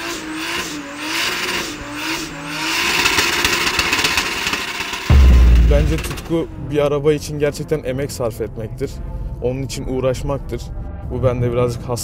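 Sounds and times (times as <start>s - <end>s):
car engine revving high: 0.0s - 6.3s.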